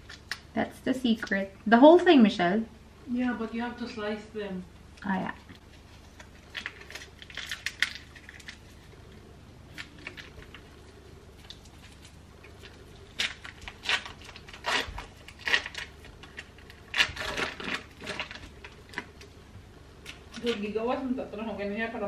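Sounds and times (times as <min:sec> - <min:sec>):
foil wrapper crinkling: 0:05.7 - 0:19.4.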